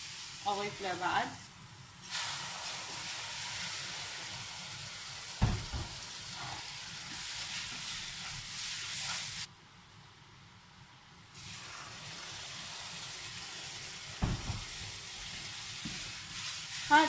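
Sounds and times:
water sizzling in hot pan: 0.0s - 9.5s, 11.3s - 17.0s
knock: 5.4s - 5.9s.

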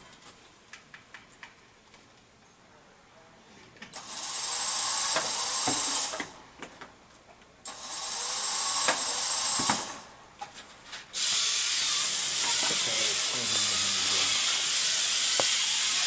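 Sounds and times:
electric motors whirring: 3.9s - 6.4s, 7.7s - 10.1s, 11.2s - 16.0s.

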